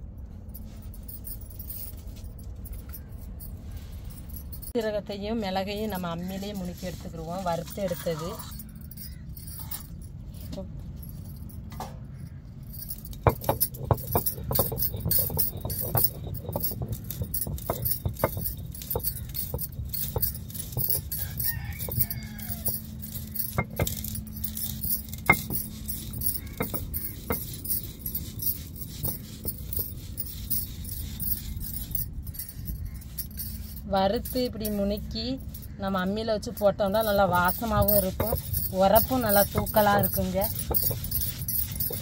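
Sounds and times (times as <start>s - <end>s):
bangles jangling: 0.0s - 42.0s
stone grinding rumble: 12.7s - 42.0s.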